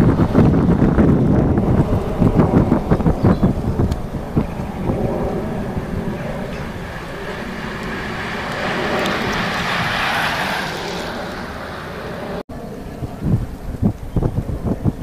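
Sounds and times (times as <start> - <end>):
wind rumbling on microphone: 0.0 - 15.0
tyres hissing on asphalt: 5.8 - 12.2.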